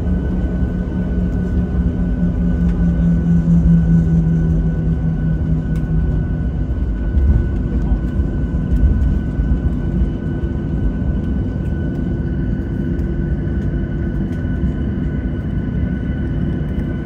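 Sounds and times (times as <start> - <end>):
jet engine low rumble in cabin: 0.0 - 17.0.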